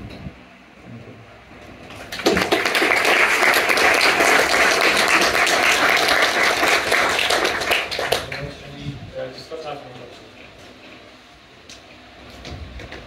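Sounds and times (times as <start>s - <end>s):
audience applauding: 2.0s - 8.6s.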